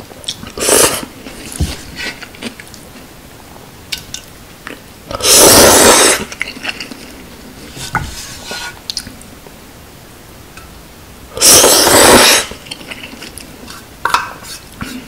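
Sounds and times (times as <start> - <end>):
chopsticks scraping metal pot: 7.7 - 8.8.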